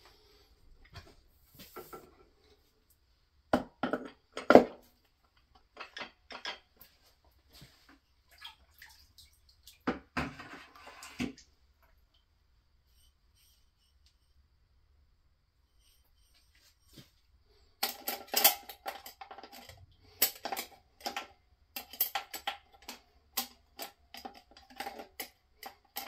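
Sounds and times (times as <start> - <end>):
metal parts knocking and clinking: 17.8 - 26.0.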